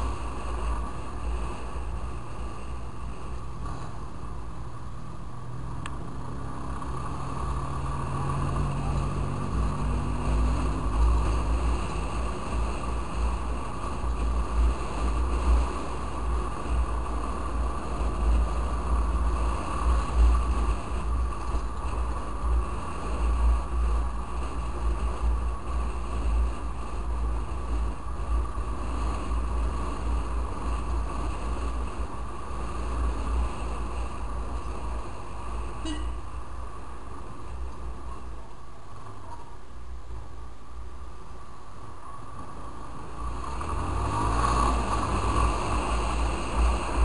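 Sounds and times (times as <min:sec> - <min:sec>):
motorcycle engine: 0:42.2 - 0:47.0.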